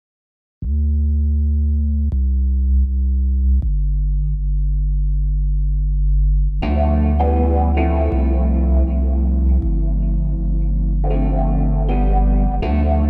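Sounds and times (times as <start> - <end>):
held electronic tones music: 6.6 - 13.0.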